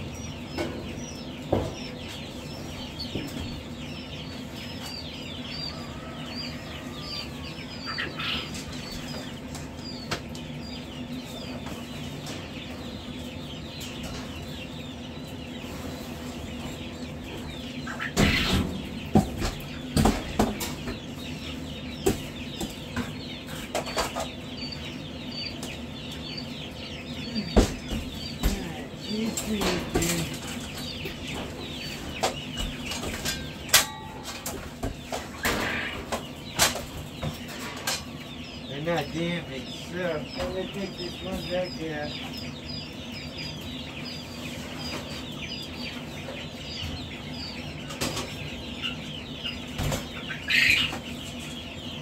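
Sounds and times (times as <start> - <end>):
metal brooder knocking and rattling: 0.0 - 6.4, 16.4 - 26.9, 27.5 - 43.3
chicks peeping: 0.0 - 52.0.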